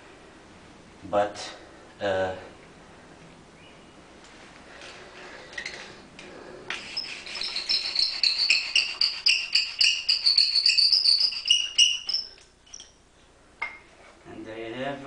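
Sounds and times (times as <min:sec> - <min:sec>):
friction drill squeaking: 0:06.8 - 0:13.0.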